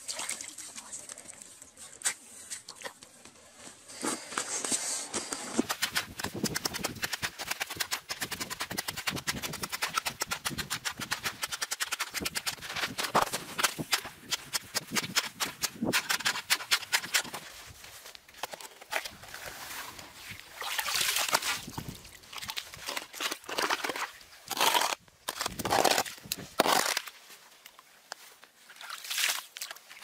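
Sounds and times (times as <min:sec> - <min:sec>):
ice chisel crunching ice: 0:05.1 - 0:17.5, 0:22.4 - 0:27.2.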